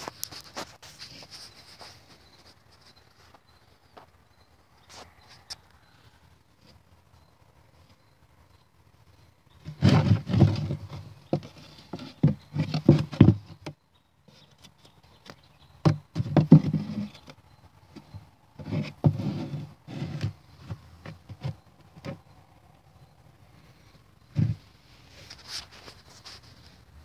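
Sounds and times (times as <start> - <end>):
tape rustling and scraping: 0.0 - 4.1, 9.6 - 17.4, 18.0 - 22.2, 24.3 - 26.9.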